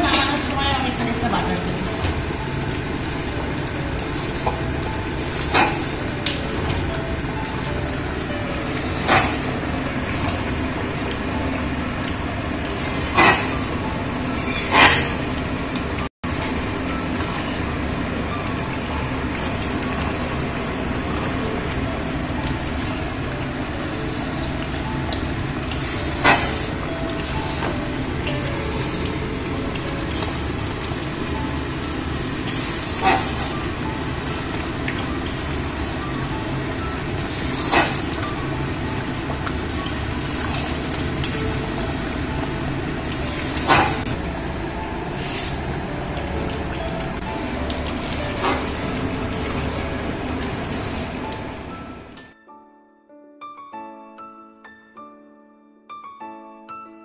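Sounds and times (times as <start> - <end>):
metal spatula scraping a pan: 5.2 - 6.1, 8.6 - 10.4, 12.8 - 13.8, 14.4 - 15.4, 25.7 - 27.7, 32.4 - 33.6, 37.2 - 38.2.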